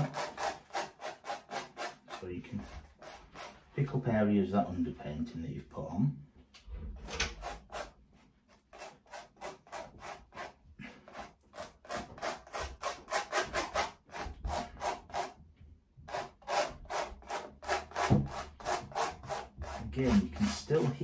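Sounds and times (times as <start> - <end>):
palette knife rasping on canvas: 0.0 - 3.6, 7.4 - 15.4, 16.1 - 21.0.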